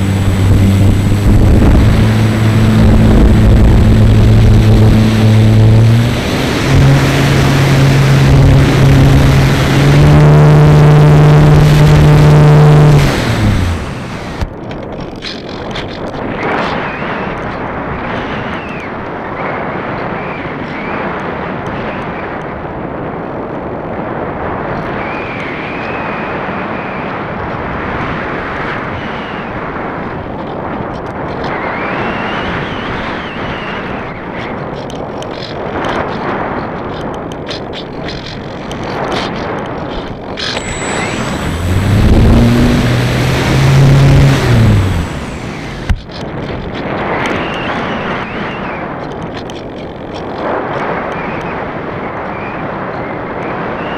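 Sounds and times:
electric motor hum and whine: 0.0s - 14.5s, 40.0s - 46.2s
wind rushing over microphone: 0.0s - 53.9s.

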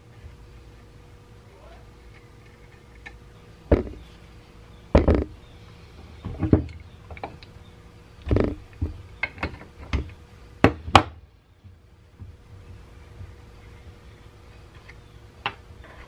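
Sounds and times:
metal knocking on wooden floor: 3.7s - 4.0s, 4.9s - 5.3s.

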